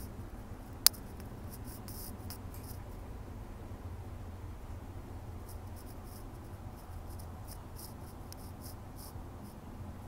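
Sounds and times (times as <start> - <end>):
low steady hum: 0.0 - 10.0
faint scratchy ticks: 0.8 - 2.9, 5.5 - 9.6.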